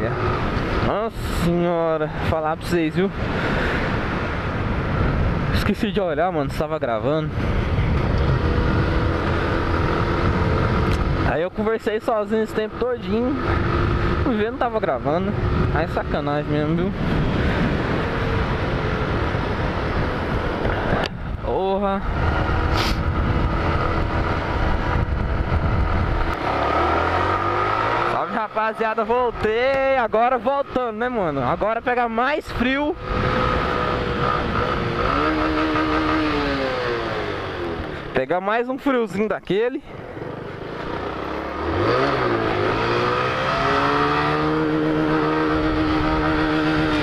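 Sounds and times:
motorcycle engine accelerating: 0:00.0 - 0:01.7, 0:07.3 - 0:31.6, 0:32.6 - 0:38.1, 0:39.9 - 0:47.0
wind rumble on microphone: 0:00.0 - 0:11.6, 0:12.7 - 0:27.6, 0:32.3 - 0:38.1.

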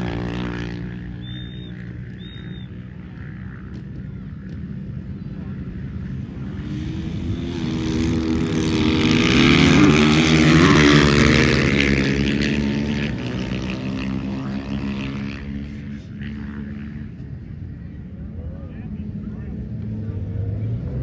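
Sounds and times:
dirt bike engine passing by: 0:00.0 - 0:04.7, 0:05.3 - 0:17.1.

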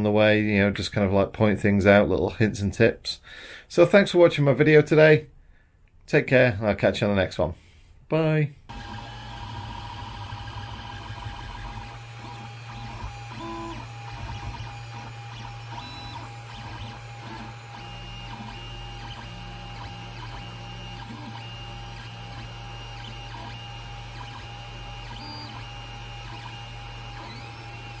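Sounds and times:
cooling fan humming: 0:08.7 - 0:22.0
stepper motors whining: 0:08.7 - 0:28.0.

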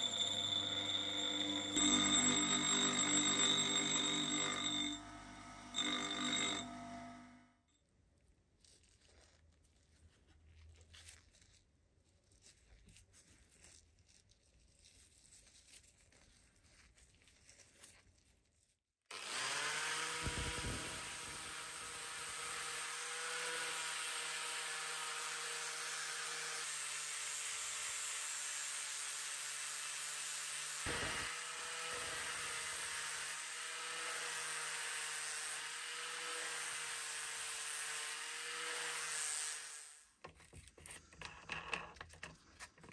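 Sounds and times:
angle grinder sanding metal: 0:00.0 - 0:06.7, 0:19.2 - 0:40.0.

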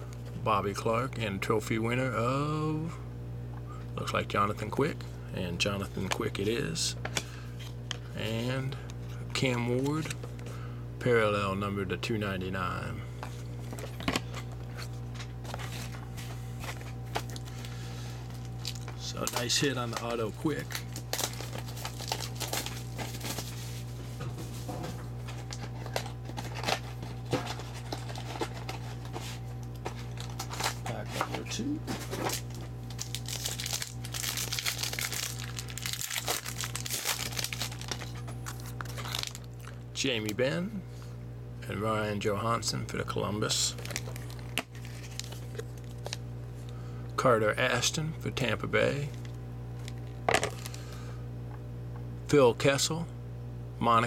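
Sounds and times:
low electrical hum: 0:00.0 - 0:54.0
plastic wrapper tearing and crinkling: 0:16.8 - 0:23.7, 0:25.2 - 0:29.1, 0:32.1 - 0:39.8, 0:43.7 - 0:46.2.

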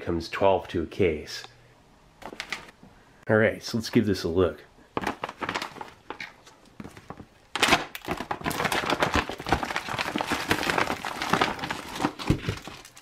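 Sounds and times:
plastic bag crinkling: 0:04.9 - 0:13.0.

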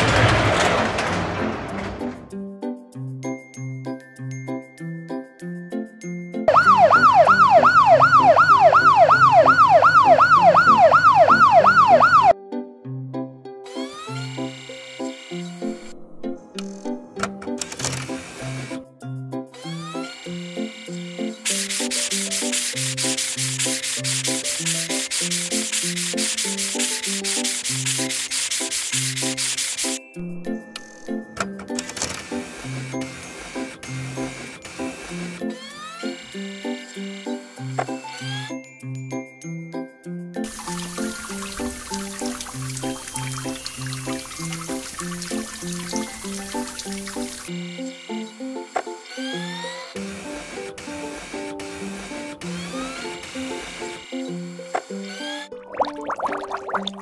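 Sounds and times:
light children's music: 0:01.2 - 0:57.0
bouncy background tune: 0:02.0 - 0:57.0
cartoon police siren yelp: 0:06.5 - 0:12.4
cartoon brush scrubbing: 0:21.4 - 0:30.0, 0:40.5 - 0:47.5.

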